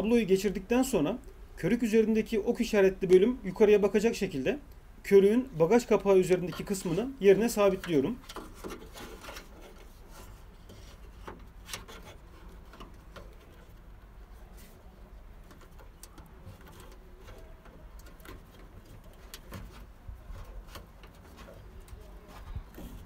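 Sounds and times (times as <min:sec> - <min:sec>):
small clicks and rubbing: 0:05.9 - 0:23.0.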